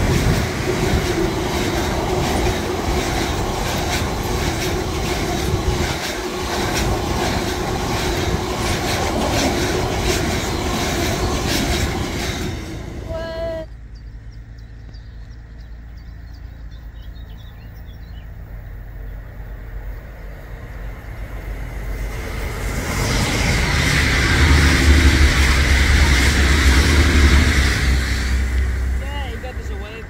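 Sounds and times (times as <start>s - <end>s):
train passing with deep rumble: 0.0s - 30.0s
faint bird chirps: 13.6s - 21.2s.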